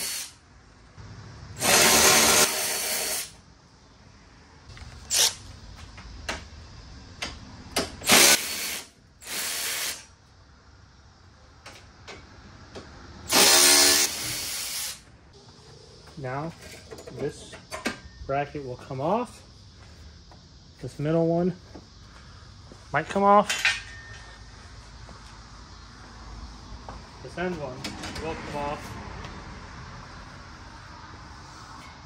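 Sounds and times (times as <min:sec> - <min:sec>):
power tool spinning bolts: 0:01.6 - 0:03.4, 0:08.0 - 0:10.1, 0:13.3 - 0:15.0.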